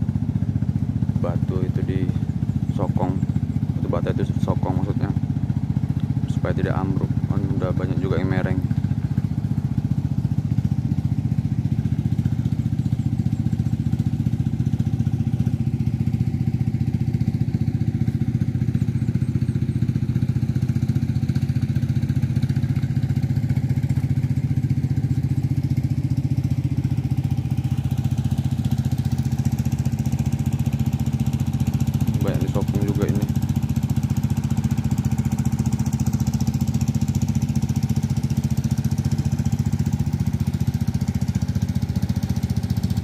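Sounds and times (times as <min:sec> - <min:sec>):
small engine running: 0:00.0 - 0:43.0.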